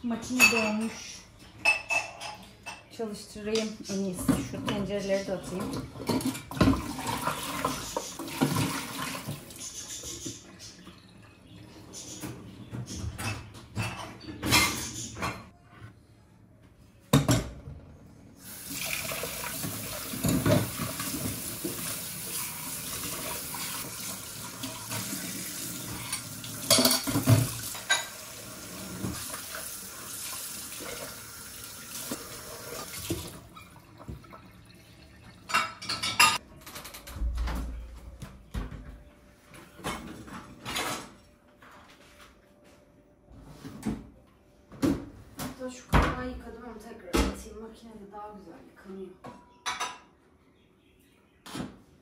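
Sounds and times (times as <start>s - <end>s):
crockery clinking against sink: 0.2s - 1.0s, 1.6s - 6.8s, 26.0s - 28.2s, 35.5s - 36.4s, 49.4s - 50.1s
dishes and rack clattering: 0.2s - 9.4s, 11.9s - 15.6s, 19.6s - 21.9s, 25.8s - 29.3s, 35.4s - 37.9s, 39.7s - 41.3s, 49.3s - 50.2s.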